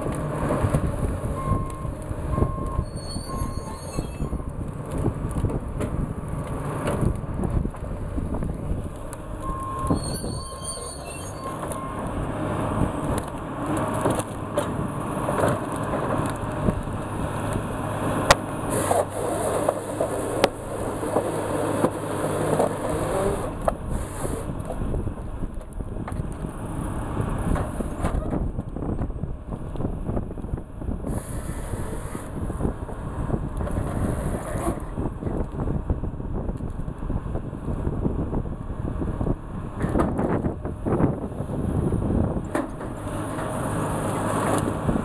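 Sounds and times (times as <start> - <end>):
diesel engine running under load: 0.0 - 10.4, 11.0 - 45.0
wood cracking and snapping: 4.5 - 9.7, 13.0 - 26.7.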